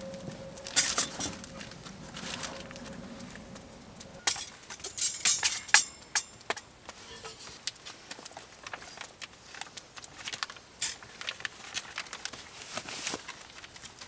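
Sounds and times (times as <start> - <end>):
metal cookware clattering on wood: 4.2 - 7.5.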